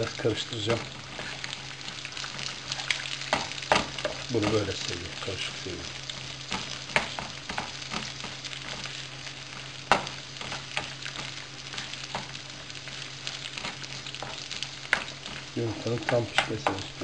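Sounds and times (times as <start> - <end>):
food sizzling in frying pan: 0.0 - 17.0
spatula tapping pan: 3.2 - 4.6, 6.4 - 8.9, 9.8 - 11.4.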